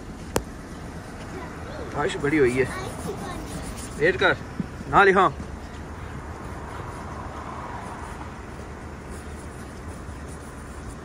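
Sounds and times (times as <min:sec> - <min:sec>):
car engine idling: 0:00.0 - 0:11.0
fingertip rubbing on glass: 0:02.2 - 0:04.4, 0:07.9 - 0:11.0.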